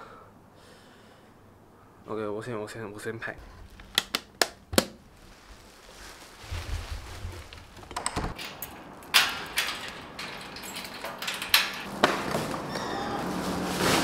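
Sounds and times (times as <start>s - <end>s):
metal grille knocks and clanks: 7.7s - 12.6s
latch clicks: 7.8s - 12.1s.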